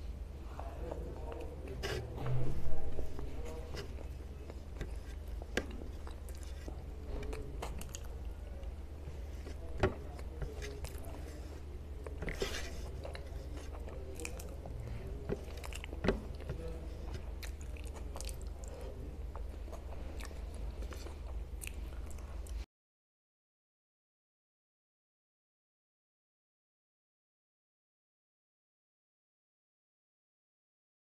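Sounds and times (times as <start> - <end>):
low steady hum: 0.0 - 22.7
person chewing food: 3.0 - 22.6.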